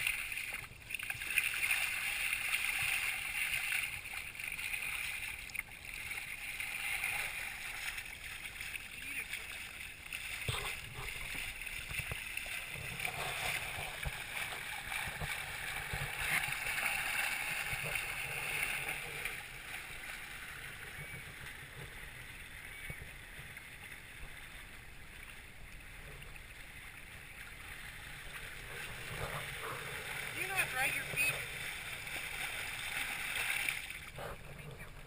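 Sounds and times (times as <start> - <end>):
foot splashing in water: 0.0 - 20.2
water rushing along hulls: 0.0 - 35.0.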